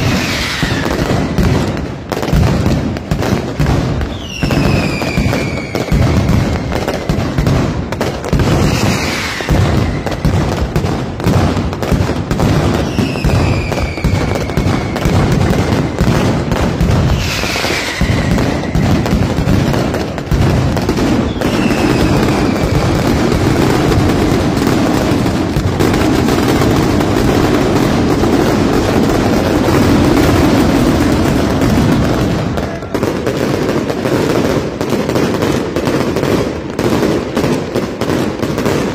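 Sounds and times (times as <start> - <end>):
descending firework whistles: 0.0 - 2.0, 3.6 - 7.6, 8.4 - 10.8, 12.7 - 34.4
fireworks bangs and crackling: 0.0 - 38.9.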